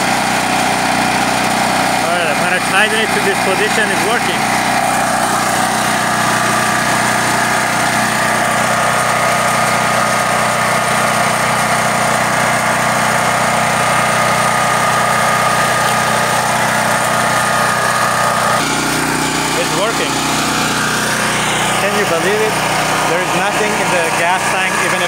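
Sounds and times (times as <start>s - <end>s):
generator engine running steadily: 0.0s - 25.0s.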